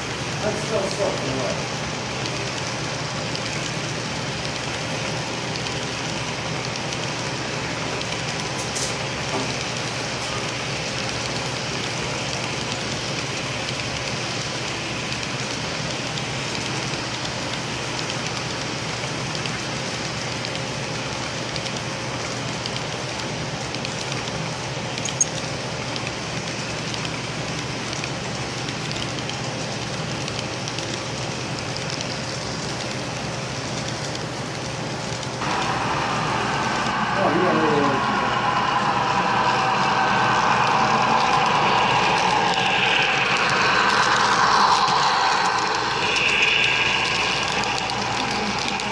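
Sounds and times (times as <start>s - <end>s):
loud wavering pitched sound: 35.4s - 48.9s.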